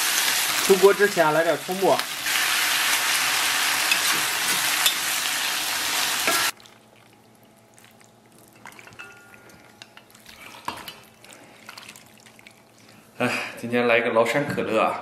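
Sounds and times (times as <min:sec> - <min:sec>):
rice sizzling in a hot wok: 0:00.0 - 0:06.6.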